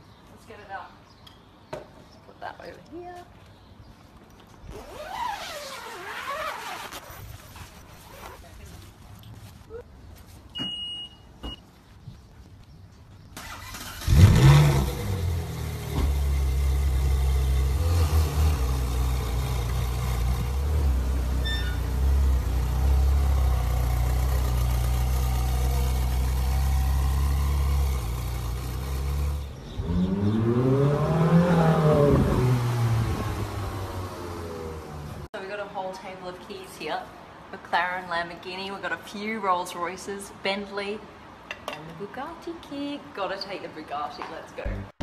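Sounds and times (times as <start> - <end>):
car engine starting and idling: 13.4 - 35.3
car engine revving: 13.7 - 35.3.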